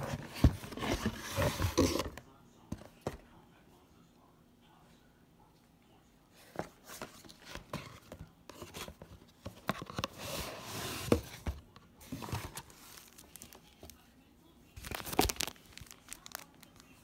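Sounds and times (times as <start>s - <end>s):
cardboard packaging rustling: 6.8s - 14.0s, 14.8s - 17.0s.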